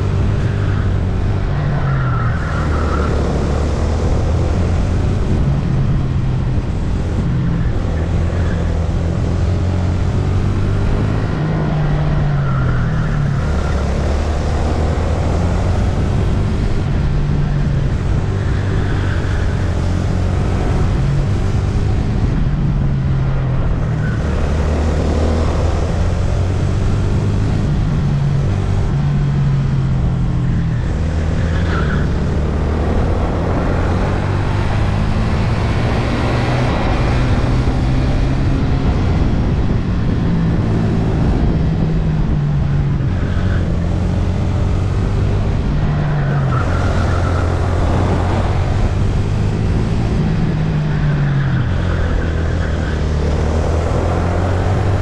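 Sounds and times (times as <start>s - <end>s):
go-kart engine revving: 30.8s - 55.0s.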